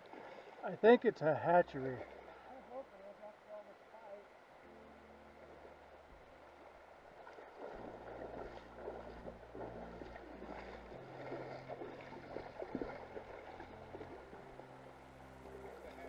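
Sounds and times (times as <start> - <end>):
running river: 0.0 - 16.0
fish splashing in water: 7.2 - 14.3.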